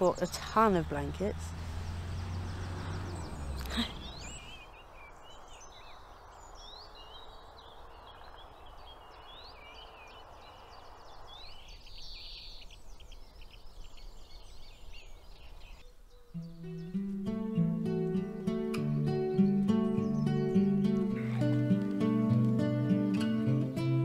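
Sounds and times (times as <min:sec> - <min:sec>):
distant road traffic hum: 0:00.0 - 0:06.2
songbirds chirping: 0:00.0 - 0:24.0.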